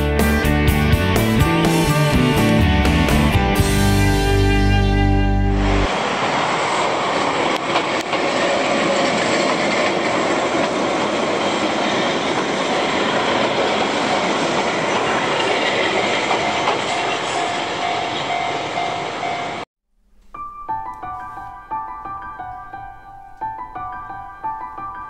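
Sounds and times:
train running noise: 0.0s - 19.7s
wheels clacking over rail joints: 7.2s - 19.6s.

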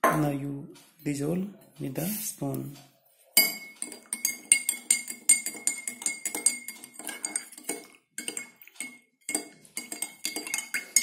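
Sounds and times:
metal spoon clinking in glass: 3.4s - 11.0s.

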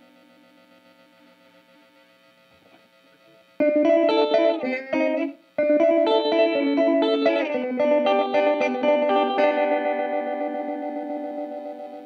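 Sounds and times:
electric guitar notes and chords: 2.6s - 12.0s.

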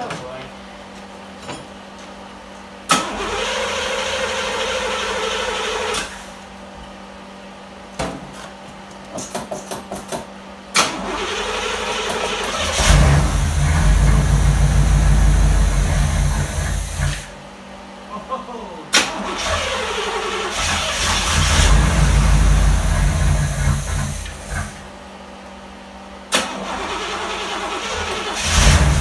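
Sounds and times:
car engine running: 12.6s - 17.3s, 20.5s - 24.8s, 27.6s - 29.0s
starter motor cranking: 19.0s - 24.8s, 26.4s - 29.0s.

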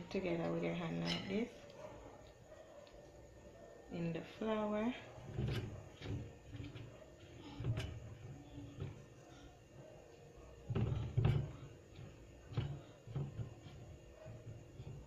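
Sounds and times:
knocks and thumps of kneading dough: 5.1s - 9.5s, 10.1s - 15.0s.

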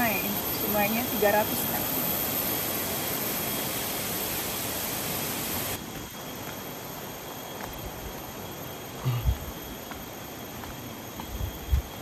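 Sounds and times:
river rushing hiss: 0.0s - 5.8s.

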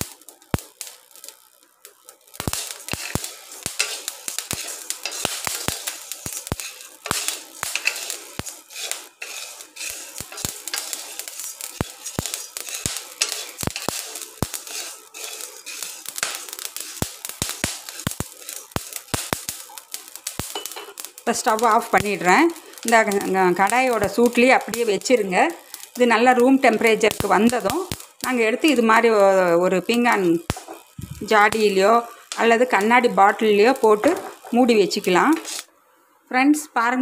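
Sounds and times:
salt crackling and popping: 0.0s - 35.8s
wooden spatula scraping: 2.6s - 17.0s, 35.3s - 35.7s.

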